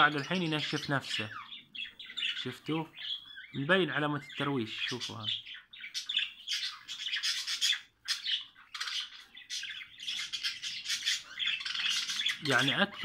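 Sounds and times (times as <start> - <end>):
budgerigars chattering and squawking: 0.0 - 13.0.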